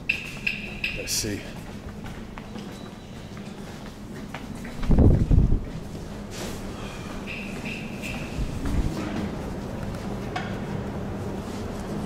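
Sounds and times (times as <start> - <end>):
microphone wind buffeting: 4.8 - 5.8, 8.3 - 9.1.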